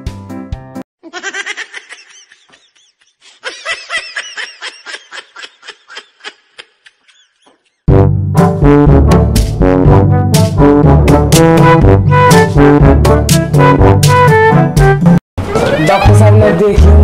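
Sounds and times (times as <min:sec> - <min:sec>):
person laughing: 0:01.0 - 0:07.8.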